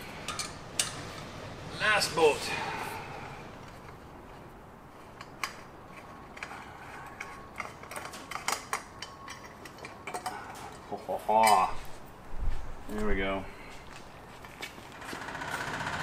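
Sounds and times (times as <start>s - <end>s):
metal parts clinking: 0.2s - 1.0s, 5.2s - 11.8s.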